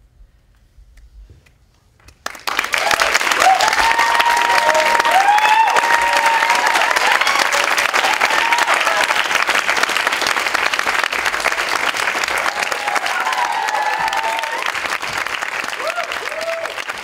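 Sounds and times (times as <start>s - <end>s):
audience clapping: 2.0s - 17.0s
people cheering: 2.5s - 17.0s.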